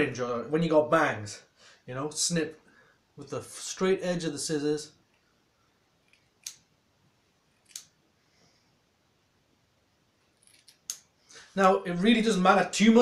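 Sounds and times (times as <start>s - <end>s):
scissors snipping hair: 7.6s - 7.9s.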